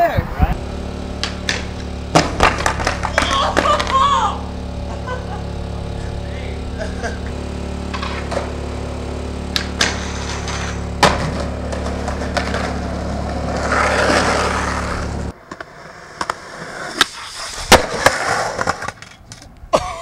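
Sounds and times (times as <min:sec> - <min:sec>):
steady low hum: 0:00.0 - 0:15.4
skateboard rolling on concrete: 0:00.0 - 0:19.8
skateboard clacks: 0:01.2 - 0:04.1, 0:07.9 - 0:08.5, 0:09.5 - 0:19.6.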